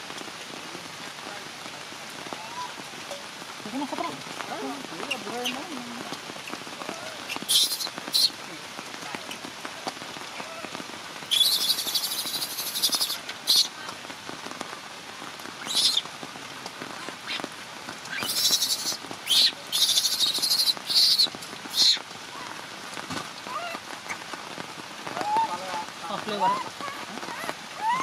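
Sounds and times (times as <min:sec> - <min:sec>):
steady rain: 0:00.0 - 0:28.0.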